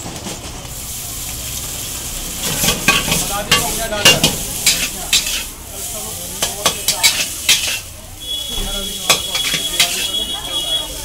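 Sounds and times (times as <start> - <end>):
frying sizzle: 0.0 - 11.0
metal ladle clanking on wok: 2.4 - 5.5, 6.4 - 7.9, 8.6 - 10.2.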